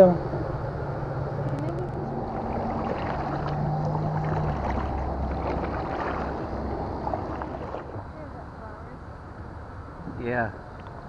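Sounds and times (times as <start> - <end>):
water crackling against hull: 1.4 - 8.4
paddle splashing and dripping: 1.9 - 8.2.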